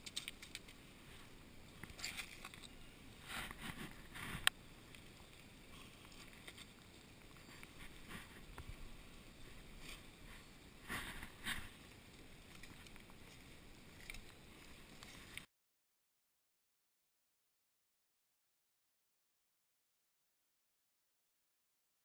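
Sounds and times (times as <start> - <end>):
hands handling fish and line: 0.0 - 8.8
scrapes: 1.9 - 4.5, 7.4 - 8.8, 9.4 - 11.9.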